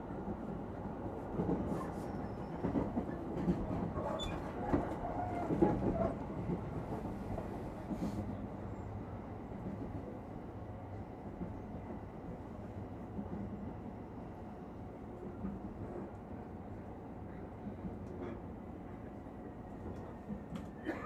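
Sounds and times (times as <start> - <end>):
train wheels rumbling on rail: 0.0 - 21.0
clacks and rattles over track: 1.4 - 8.1.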